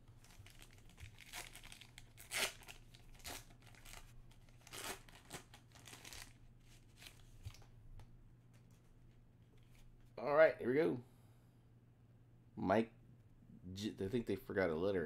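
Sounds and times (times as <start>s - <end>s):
wrapper being torn and crinkled: 0.2s - 7.3s.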